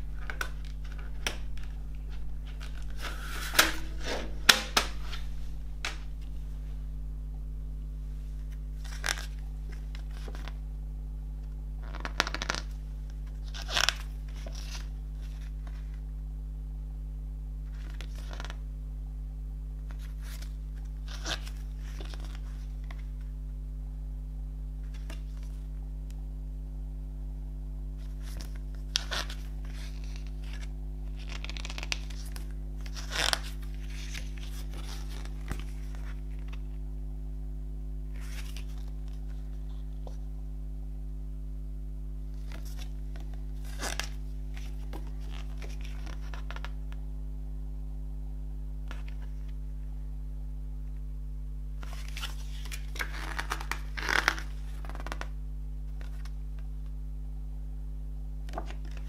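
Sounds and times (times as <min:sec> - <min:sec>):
paper pages rustling: 0:00.0 - 0:07.0, 0:08.2 - 0:10.6, 0:11.9 - 0:16.0, 0:19.9 - 0:23.2, 0:28.0 - 0:36.6, 0:38.1 - 0:40.2, 0:42.4 - 0:46.7, 0:51.8 - 0:55.2
paper crinkling: 0:00.0 - 0:07.1, 0:08.3 - 0:10.6, 0:28.0 - 0:36.6, 0:38.2 - 0:40.2, 0:51.8 - 0:55.2
steady low hum: 0:00.0 - 0:59.0.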